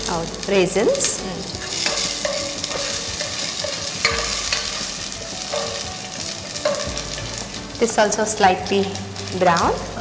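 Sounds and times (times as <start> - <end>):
raisins sizzling in hot ghee: 0.0 - 10.0
spatula scraping pan bottom: 1.6 - 7.5.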